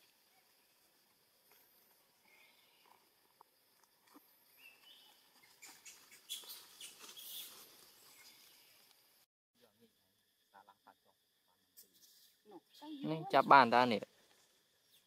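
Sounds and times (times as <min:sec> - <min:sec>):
faint bird chirps: 0:02.2 - 0:03.0, 0:04.5 - 0:08.9, 0:10.4 - 0:14.0.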